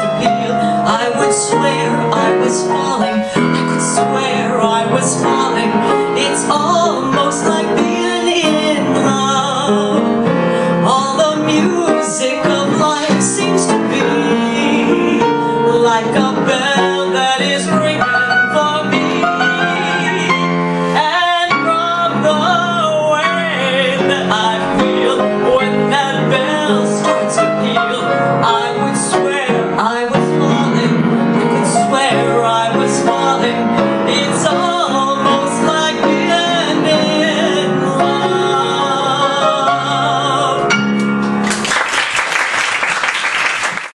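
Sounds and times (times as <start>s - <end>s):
instrumental accompaniment: 0.0s - 41.8s
audience applause: 41.4s - 44.0s.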